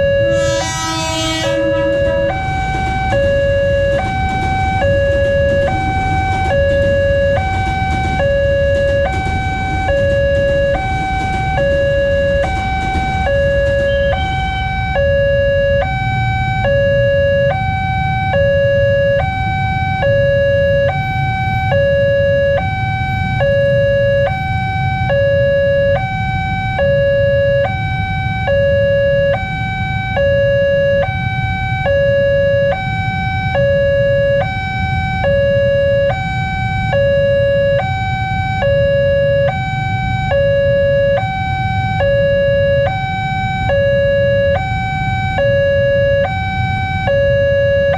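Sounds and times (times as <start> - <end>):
electric train passing: 0.0 - 16.6
low rumble of waiting traffic: 0.0 - 47.9
two-tone level crossing alarm: 0.0 - 47.9.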